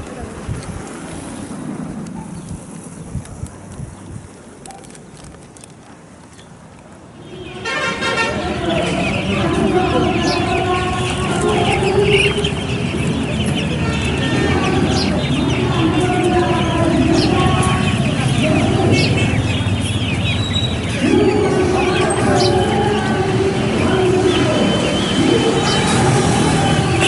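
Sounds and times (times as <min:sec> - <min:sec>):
steady background din: 0:07.0 - 0:27.0
chicks cheeping: 0:08.6 - 0:26.0.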